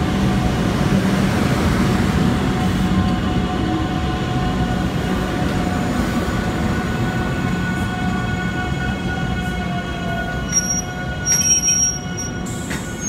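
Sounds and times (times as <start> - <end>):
electric train rumbling past: 0.0 - 13.0
wheels squealing on rails: 7.2 - 13.0.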